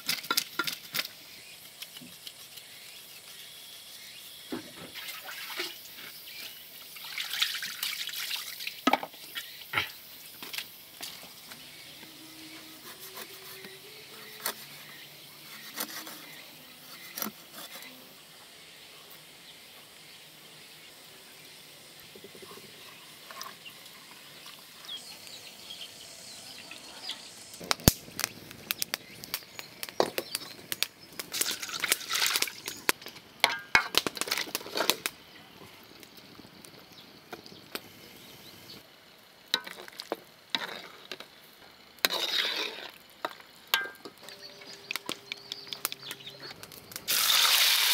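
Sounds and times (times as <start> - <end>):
wood fire crackling: 0.0 - 3.4, 21.9 - 47.9.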